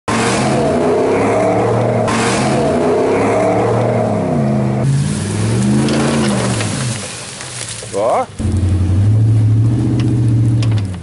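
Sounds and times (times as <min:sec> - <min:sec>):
truck engine revving: 0:00.1 - 0:07.5, 0:08.1 - 0:11.0
tyres spinning on snow: 0:04.8 - 0:11.0.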